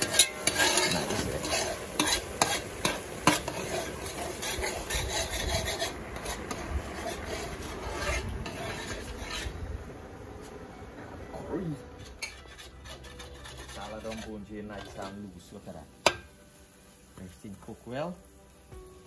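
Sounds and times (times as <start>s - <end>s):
metal spoon scraping metal pot: 0.0s - 9.6s, 11.9s - 15.2s.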